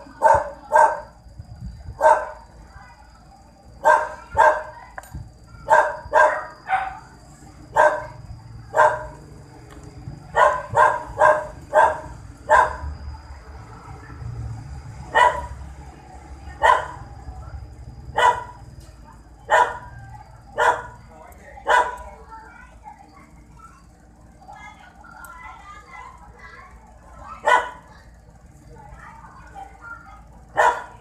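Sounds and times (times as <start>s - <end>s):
dog barking: 0.1s - 1.2s, 2.0s - 2.4s, 3.8s - 4.8s, 5.6s - 7.1s, 7.7s - 9.2s, 10.3s - 12.9s, 15.1s - 15.6s, 16.6s - 17.1s, 18.1s - 18.6s, 19.5s - 21.0s, 21.6s - 22.1s, 27.4s - 28.0s, 30.5s - 31.0s.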